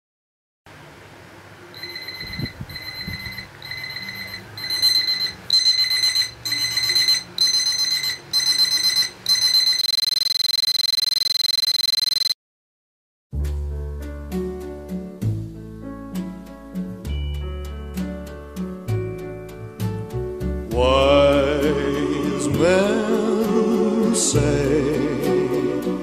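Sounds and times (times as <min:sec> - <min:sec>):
smartphone alarm beeping: 0:01.8 - 0:12.4.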